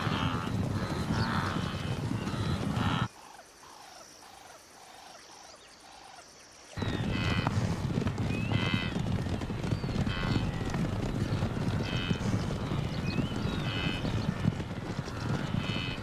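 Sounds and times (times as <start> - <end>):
animals grunting and honking: 0.0 - 3.1, 7.0 - 7.6, 10.1 - 10.5, 11.4 - 12.9
hooves galloping: 0.0 - 3.1, 6.8 - 16.0.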